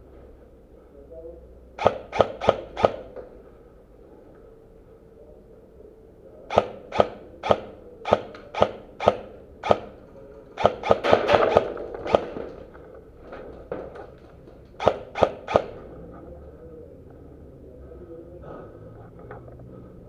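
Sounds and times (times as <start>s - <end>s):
airsoft rifle shots: 1.8s - 3.2s, 6.5s - 10.0s, 10.6s - 12.6s, 14.8s - 15.9s.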